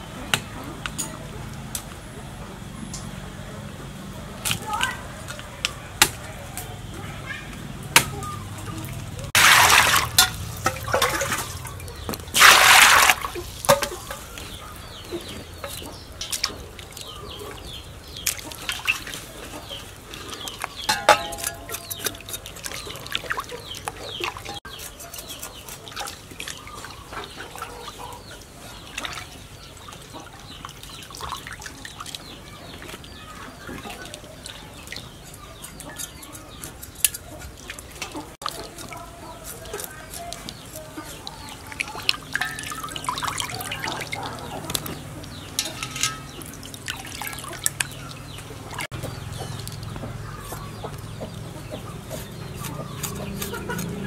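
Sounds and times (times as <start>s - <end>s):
water splashing in steel basin: 8.8s - 24.6s, 25.9s - 52.1s.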